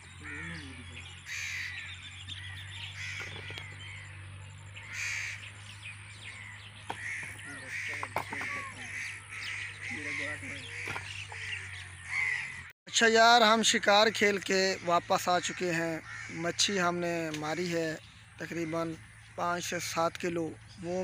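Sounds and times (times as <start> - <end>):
crows cawing: 0.2 - 12.7, 13.8 - 19.5
sharp knocks: 6.8 - 8.7.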